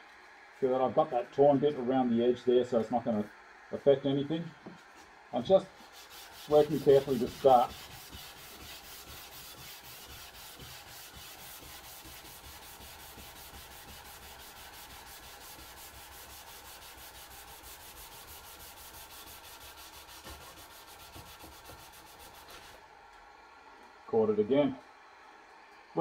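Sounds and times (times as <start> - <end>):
sandpaper rubbing on wood: 5.8 - 22.8.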